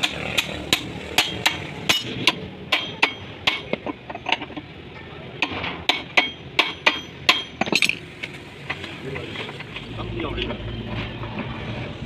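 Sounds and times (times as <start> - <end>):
hammer striking steel: 0.0 - 4.4, 5.4 - 8.0.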